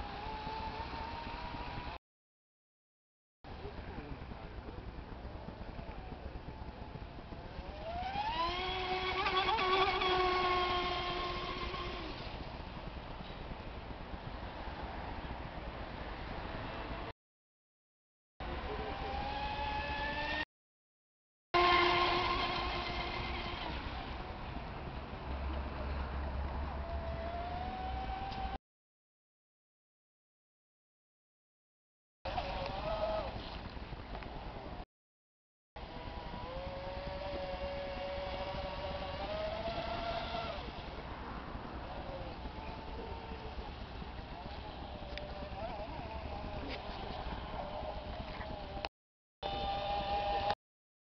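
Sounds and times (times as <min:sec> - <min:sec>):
model boat motor whining: 0:00.0 - 0:02.0, 0:05.8 - 0:12.6, 0:18.4 - 0:20.5, 0:21.6 - 0:24.6, 0:26.7 - 0:28.6, 0:32.3 - 0:33.6, 0:35.8 - 0:41.2, 0:41.8 - 0:50.6
wind rumble on microphone: 0:03.5 - 0:17.1, 0:35.8 - 0:48.9.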